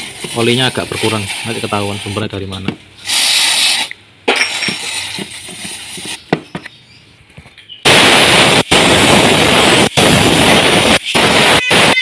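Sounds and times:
aerosol can hissing: 0:00.0 - 0:02.4, 0:03.0 - 0:06.3
loud pressurized spray blast: 0:00.0 - 0:02.4, 0:03.0 - 0:06.3, 0:07.9 - 0:12.0.

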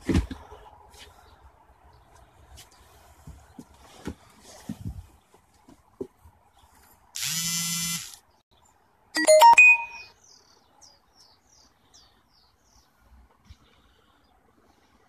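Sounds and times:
electronic buzz: 0:07.2 - 0:08.2
clicks and chime-like tones: 0:09.2 - 0:10.1.

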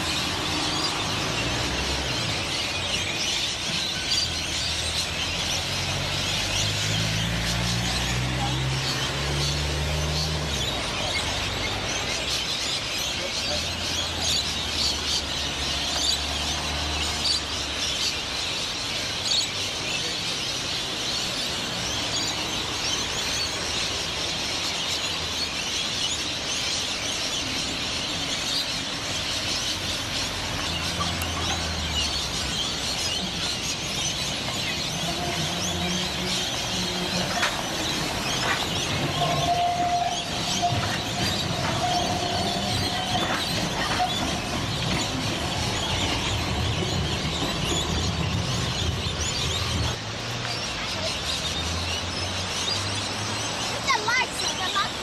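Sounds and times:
birds chattering and chirping: 0:00.0 - 0:55.0
road traffic and trams rumbling: 0:00.0 - 0:55.0
tram wheels squealing: 0:21.4 - 0:51.7.

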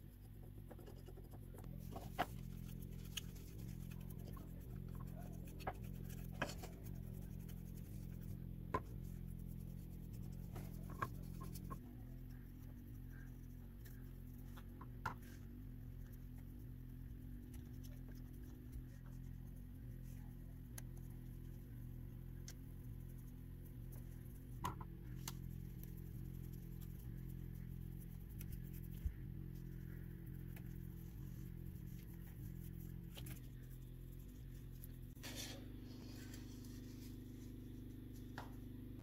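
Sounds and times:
brush scratching on wood: 0:00.1 - 0:14.4, 0:22.6 - 0:38.2.

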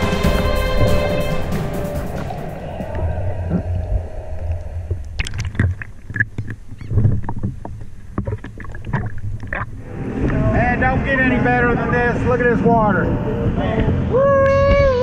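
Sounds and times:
water splashing and sloshing: 0:00.0 - 0:11.1
low steady rumble: 0:00.7 - 0:15.0.

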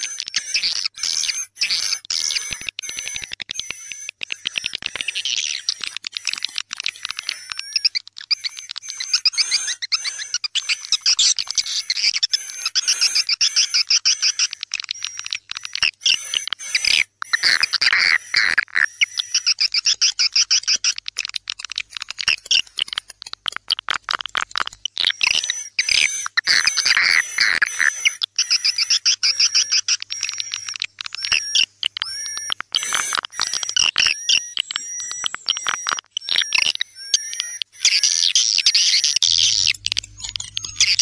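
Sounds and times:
swiftlets twittering: 0:16.0 - 0:41.0.

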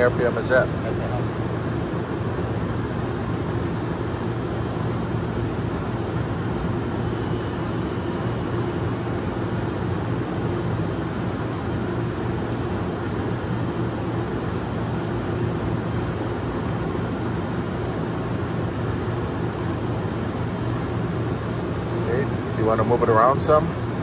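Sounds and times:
boring mill hum: 0:00.0 - 0:24.0.

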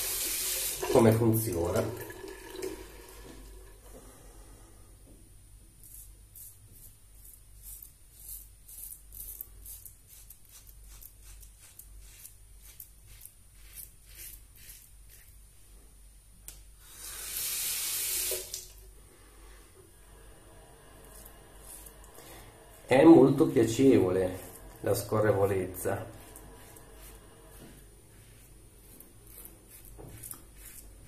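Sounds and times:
razor scraping stubble: 0:05.8 - 0:15.4, 0:21.0 - 0:31.0.

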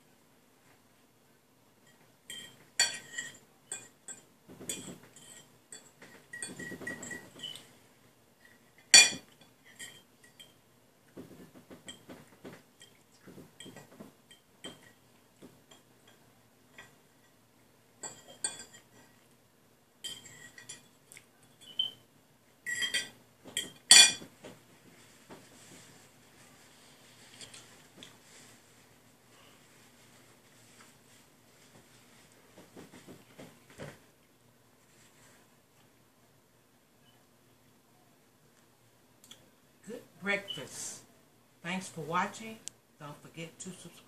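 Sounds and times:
forks clinking on plates: 0:01.9 - 0:07.7, 0:08.8 - 0:10.6, 0:18.0 - 0:19.2, 0:20.0 - 0:22.0, 0:22.6 - 0:24.3.

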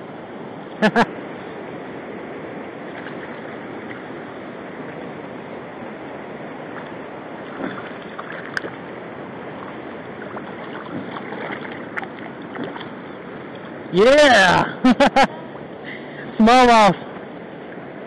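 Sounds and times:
river water rushing: 0:00.0 - 0:18.0
wind on microphone: 0:01.4 - 0:14.0.

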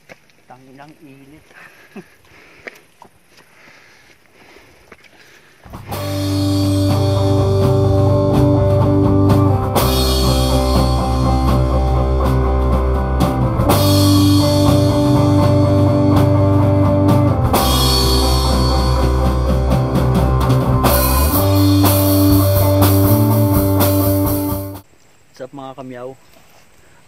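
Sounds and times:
rock music with drums and guitar: 0:05.7 - 0:24.8.

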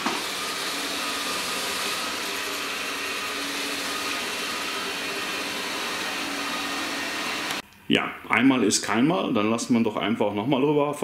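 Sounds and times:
robot vacuum whirring: 0:00.0 - 0:07.6.

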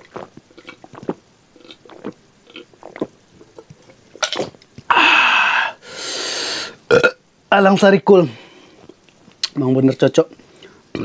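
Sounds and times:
man gulping swallows: 0:00.0 - 0:05.0.

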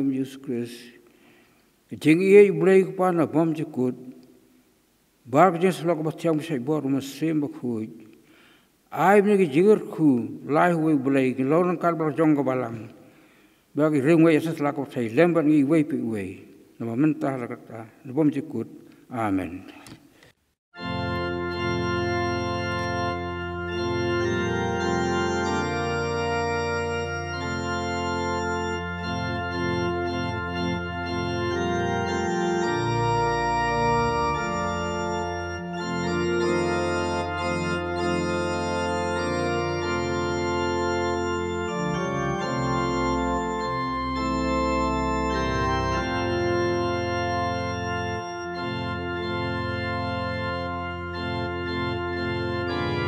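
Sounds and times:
organ playing slow chords: 0:20.8 - 0:53.0.

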